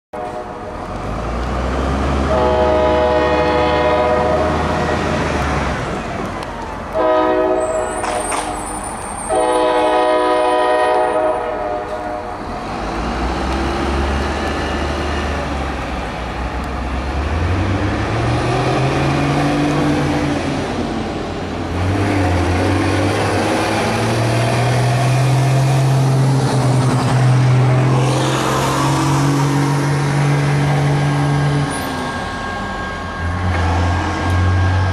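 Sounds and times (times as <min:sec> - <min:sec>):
locomotive horn blasts: 0:00.2 - 0:00.8, 0:02.2 - 0:05.2, 0:06.9 - 0:12.4
locomotive engines droning: 0:00.2 - 0:34.9.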